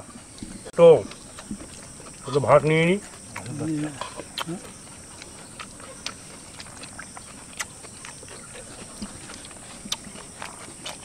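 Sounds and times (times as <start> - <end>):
clicks and smacks of eating: 3.1 - 11.0.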